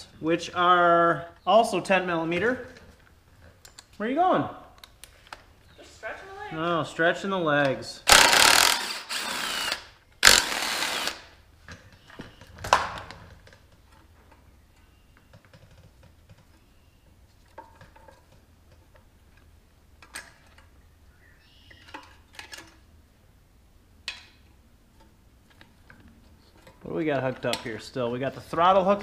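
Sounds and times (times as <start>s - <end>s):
cordless drill motor running: 8.1s - 11.3s
plastic parts clicking and clattering: 21.8s - 22.8s.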